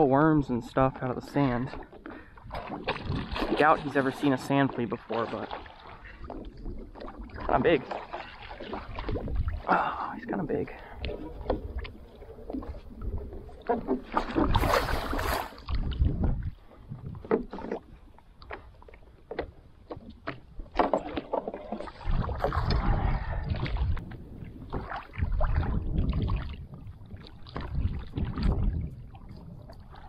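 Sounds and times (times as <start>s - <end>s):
water lapping against a board: 0.0s - 30.0s
wind rumbling on microphone: 2.4s - 4.2s, 8.4s - 18.7s, 19.9s - 30.0s.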